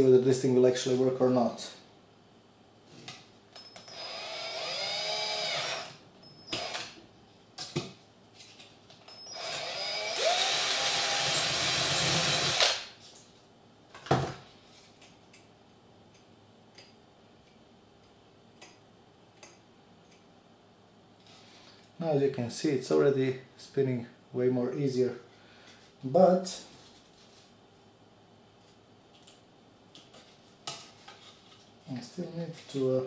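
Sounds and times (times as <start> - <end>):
cordless drill drilling plastic: 3.9 - 5.9, 6.6 - 6.8, 9.2 - 12.8.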